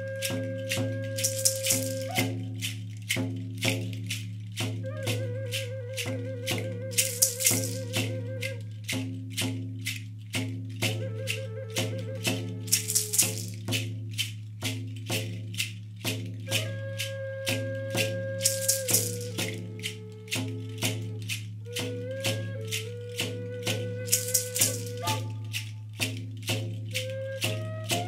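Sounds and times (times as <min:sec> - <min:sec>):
wooden flute melody: 0:00.0 - 0:10.1, 0:10.7 - 0:14.3, 0:15.6 - 0:28.0
gourd rattles shaken: 0:00.0 - 0:28.0
frame drum beat: 0:00.7 - 0:05.4, 0:06.5 - 0:11.2, 0:11.8 - 0:16.5, 0:17.9 - 0:22.0, 0:23.2 - 0:27.0.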